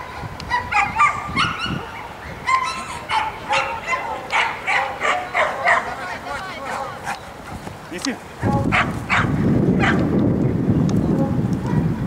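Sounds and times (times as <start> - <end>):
dog barking: 0.0 - 7.2, 8.4 - 10.0.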